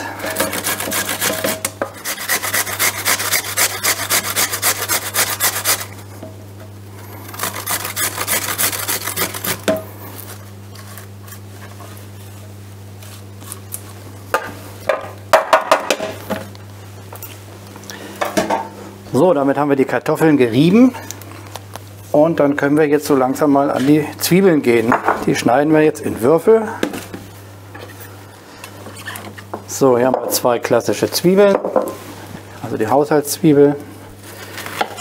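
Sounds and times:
potatoes grated on a grater: 0:00.2 - 0:06.0, 0:07.3 - 0:09.7
grater knocking against steel pan: 0:00.3 - 0:02.0.

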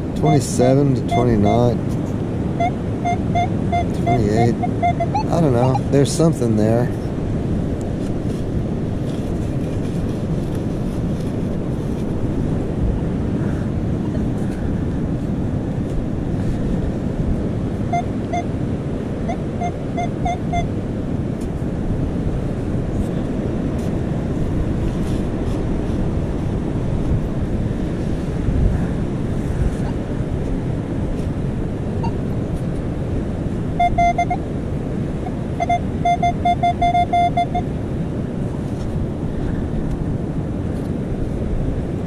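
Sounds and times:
ocean surf: 0:00.0 - 0:42.0
wind buffeting microphone: 0:00.0 - 0:42.0
metal detector beeps: 0:00.2 - 0:01.8, 0:02.6 - 0:05.9, 0:17.9 - 0:18.5, 0:19.3 - 0:20.7, 0:32.0 - 0:32.2, 0:33.8 - 0:34.4, 0:35.2 - 0:37.7.

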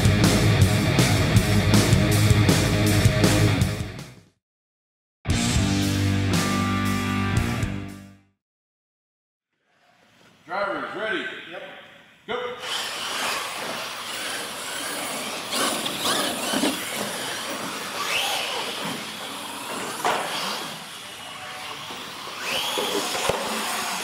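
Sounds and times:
toy truck motors whining: 0:12.6 - 0:24.0.

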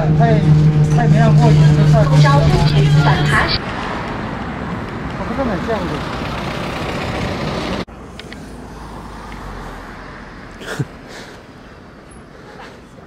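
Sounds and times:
short sound dropping in pitch: 0:00.0 - 0:03.6
loud noise: 0:00.0 - 0:04.8
road traffic: 0:00.0 - 0:13.0.

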